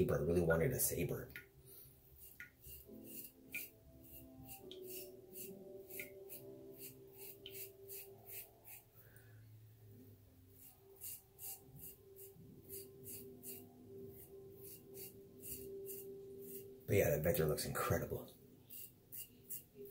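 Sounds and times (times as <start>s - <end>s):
faint background music: 0.0s - 19.9s
razor scraping stubble: 2.2s - 8.9s, 10.6s - 16.8s, 18.6s - 19.9s.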